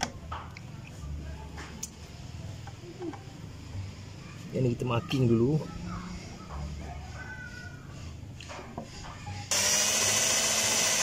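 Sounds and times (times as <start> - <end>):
power drill boring: 9.5 - 11.0.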